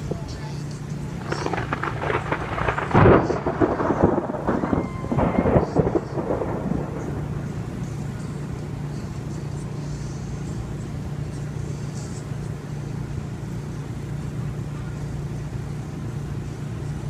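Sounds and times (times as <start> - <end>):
steady low hum: 0.0 - 17.0
wind buffeting microphone: 1.1 - 8.2.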